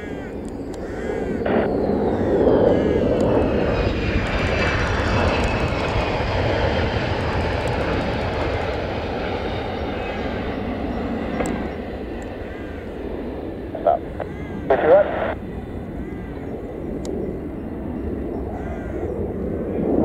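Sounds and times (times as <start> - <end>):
jet engines rumbling: 0.0 - 20.0
jet whine falling in pitch: 1.3 - 6.9, 13.6 - 15.4.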